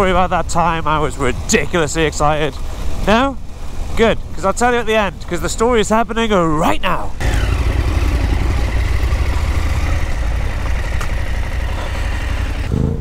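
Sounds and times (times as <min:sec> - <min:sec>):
motorcycle engine idling: 0:07.2 - 0:12.7.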